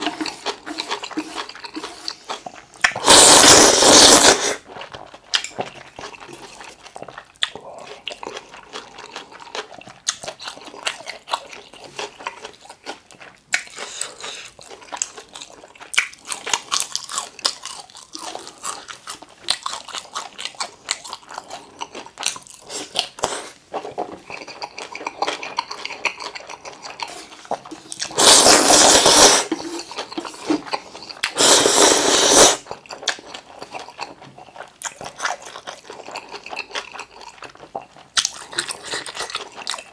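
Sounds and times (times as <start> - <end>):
loud slurps: 0.0 - 4.6, 28.0 - 30.6, 31.2 - 32.7
wet chewing with crunches: 0.0 - 39.9.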